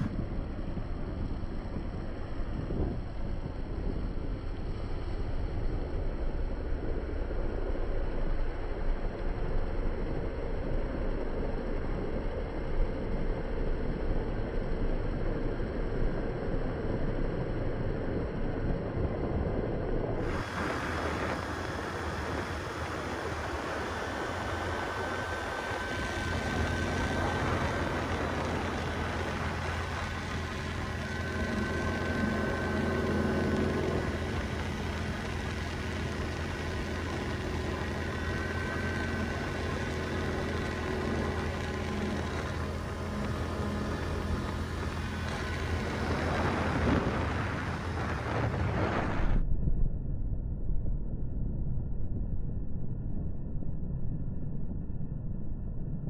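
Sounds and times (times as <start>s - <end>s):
quad engine running: 0.0s - 49.3s
wind buffeting microphone: 18.5s - 49.5s.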